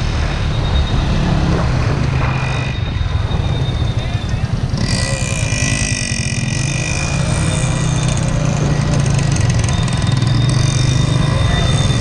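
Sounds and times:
motorcycle engine running: 4.4 - 12.0.

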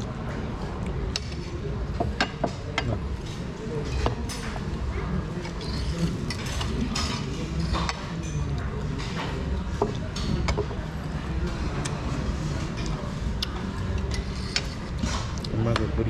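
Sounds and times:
cutlery clinking on plates: 5.4 - 10.8.

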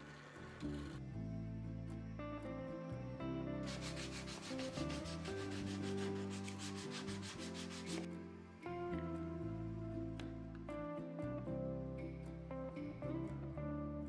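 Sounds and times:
soft background music: 0.0 - 14.0
sanding block rubbing wood: 3.6 - 8.1.

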